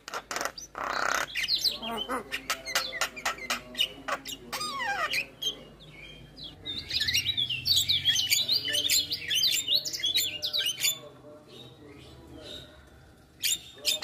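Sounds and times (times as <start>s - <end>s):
bird whistling and chattering: 6.7s - 11.0s.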